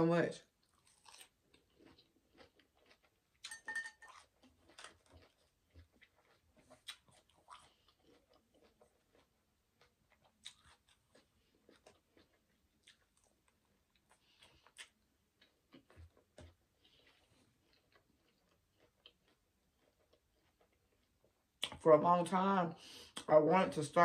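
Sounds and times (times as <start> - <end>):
chewing and mouth clicks: 0.6 - 21.8
clattering clink: 3.5 - 4.1.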